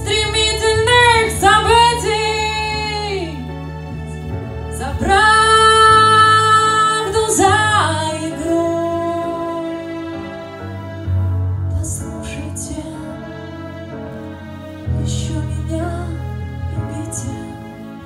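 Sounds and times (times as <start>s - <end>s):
woman singing through speakers: 0.0s - 3.4s, 4.8s - 9.7s
soft sustained accompaniment: 0.0s - 18.0s.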